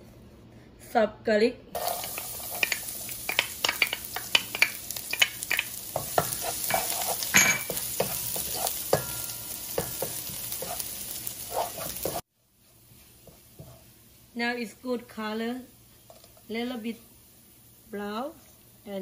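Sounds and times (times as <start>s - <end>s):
garlic sizzling in oil: 1.8s - 19.0s
wooden spatula scraping pan: 6.0s - 9.1s, 9.8s - 13.9s.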